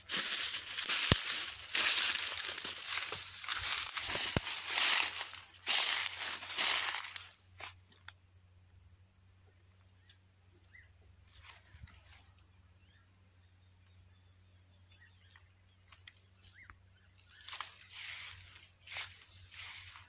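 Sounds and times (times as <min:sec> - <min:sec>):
high-pitched insect trilling: 0:00.0 - 0:07.2
footsteps on dry clods: 0:00.0 - 0:08.0, 0:17.3 - 0:20.0.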